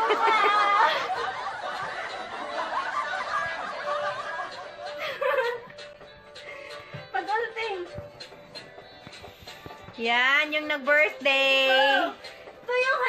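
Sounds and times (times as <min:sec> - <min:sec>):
woman laughing: 0:00.0 - 0:05.9.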